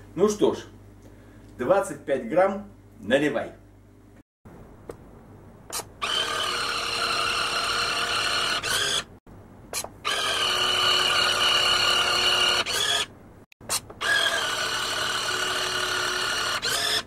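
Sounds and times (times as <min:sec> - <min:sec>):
small electric pump whining: 0:05.7 - 0:09.2, 0:09.8 - 0:13.1, 0:13.7 - 0:17.0.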